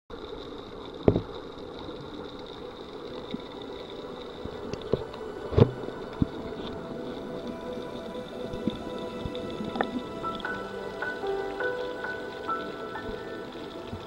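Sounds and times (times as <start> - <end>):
underwater mechanical hum: 0.1 - 14.0.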